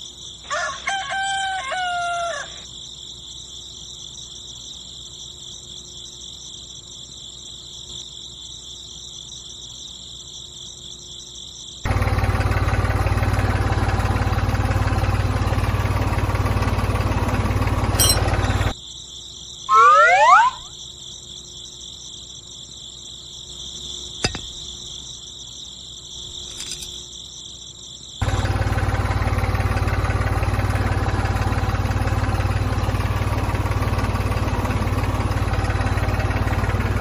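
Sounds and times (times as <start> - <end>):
insects chirring: 0.0 - 11.9, 17.6 - 28.4
rooster crowing: 0.5 - 2.7.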